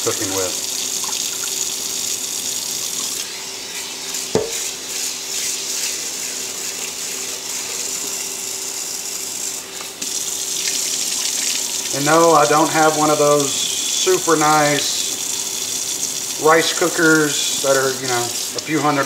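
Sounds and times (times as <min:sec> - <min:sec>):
tap water running into pot: 0:00.0 - 0:03.3, 0:04.2 - 0:19.0
pot knock: 0:04.4 - 0:04.6
water splashing into steel sink: 0:04.4 - 0:04.7.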